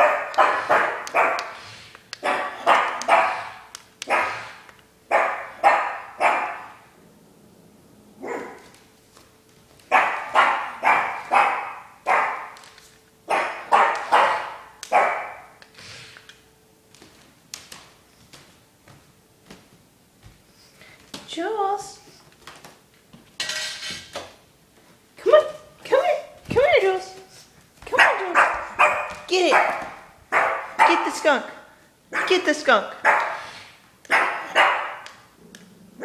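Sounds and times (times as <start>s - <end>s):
dog barking sharply: 0.0s - 1.6s, 2.2s - 6.8s, 8.2s - 8.6s, 9.9s - 12.6s, 13.3s - 15.6s, 28.0s - 31.2s, 32.1s - 32.4s, 33.0s - 33.5s, 34.1s - 35.0s.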